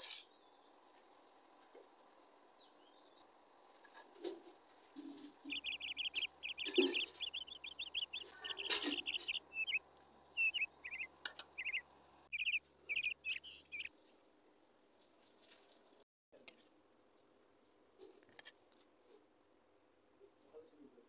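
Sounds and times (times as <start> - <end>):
small bird chirping: 2.6 - 13.9.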